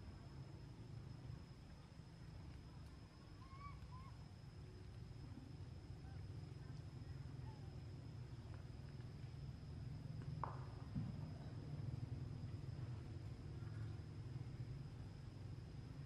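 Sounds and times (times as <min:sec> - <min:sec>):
faint chirping calls: 0:02.8 - 0:04.2.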